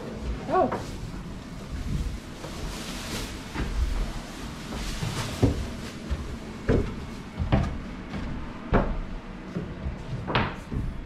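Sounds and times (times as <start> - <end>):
low steady rumble: 0.0 - 11.0
knocks and thumps: 4.8 - 11.0.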